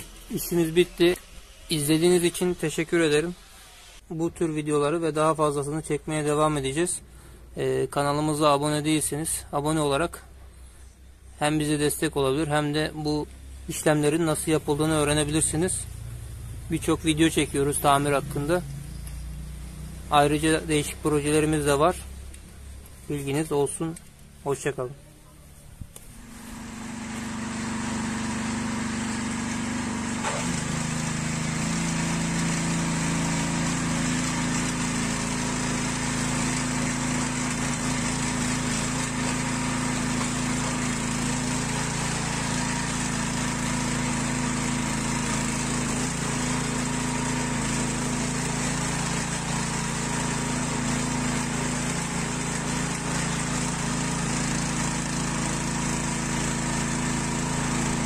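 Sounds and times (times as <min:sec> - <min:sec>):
small engine running: 0:14.3 - 0:22.9, 0:26.2 - 0:58.0.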